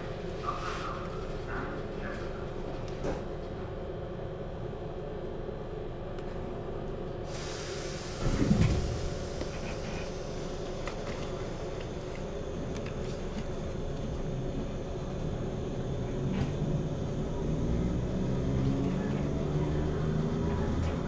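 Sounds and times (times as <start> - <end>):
air hiss: 7.3 - 10.4
train equipment humming: 7.3 - 21.0
sliding doors closing thud: 8.1 - 9.6.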